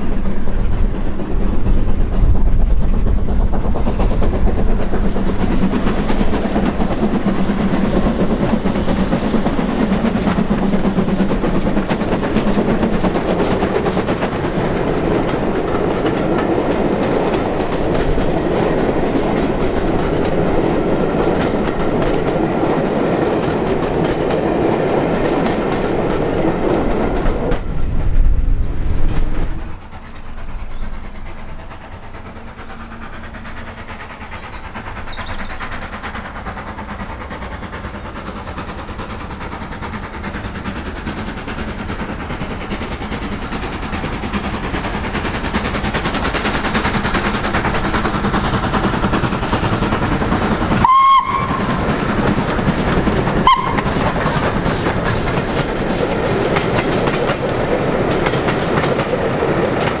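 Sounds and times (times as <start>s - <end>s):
steam train running: 0.0s - 60.0s
train whistle toots: 50.8s - 51.8s, 53.4s - 54.0s.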